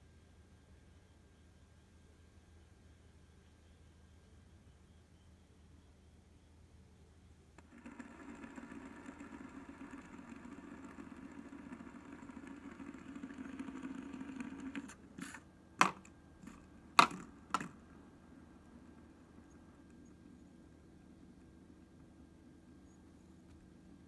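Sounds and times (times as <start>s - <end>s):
spinner clacking against wood: 7.6s - 18.0s
fidget spinner whirring: 7.6s - 24.0s.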